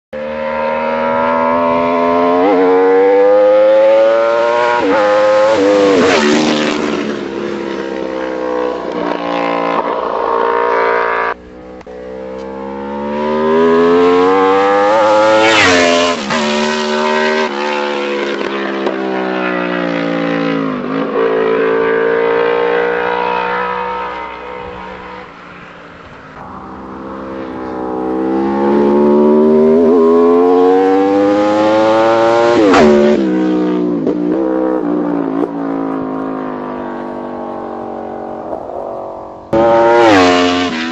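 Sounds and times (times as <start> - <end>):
motorcycle accelerating through gears: 0.2 - 40.9
motorcycle passing at speed: 0.2 - 40.9.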